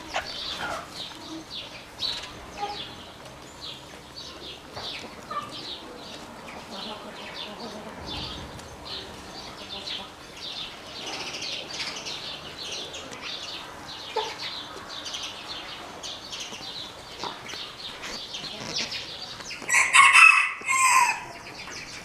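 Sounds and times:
birds chirping: 0.0s - 22.0s
rooster crowing: 19.7s - 21.4s.

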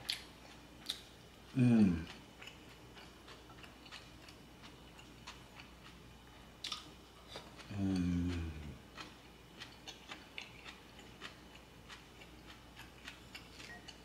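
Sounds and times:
chewing and mouth clicks: 0.0s - 1.2s, 1.9s - 14.0s
person humming mmm: 1.5s - 2.2s, 7.6s - 8.8s.

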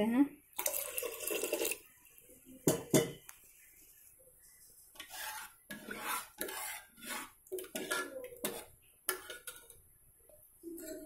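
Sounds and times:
spoon scraping and knocking pot: 2.6s - 3.3s, 4.9s - 9.8s.

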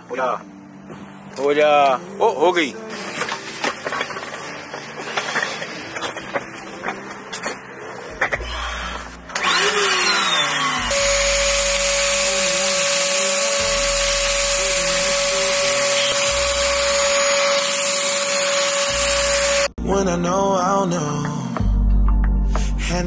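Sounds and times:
shop vacuum running: 8.6s - 19.7s.

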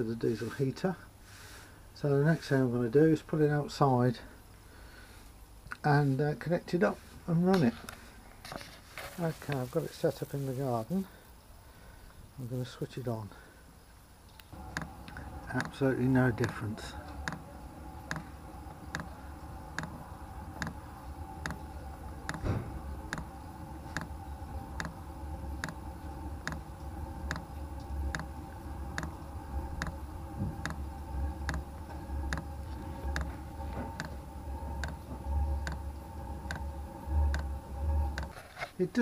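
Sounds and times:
heater humming: 0.0s - 39.0s
fuel pump ticking: 14.6s - 20.0s, 20.6s - 20.8s, 21.4s - 25.0s, 25.6s - 38.3s.

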